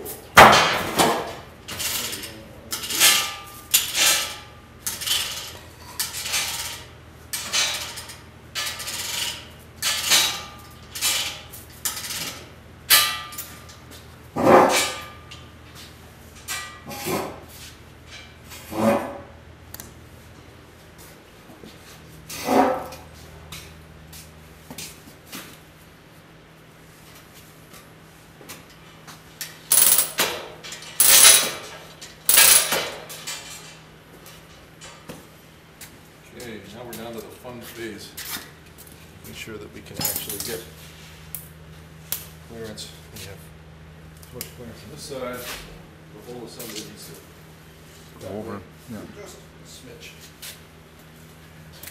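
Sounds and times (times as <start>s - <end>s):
metal parts clattering: 29.7s - 33.8s.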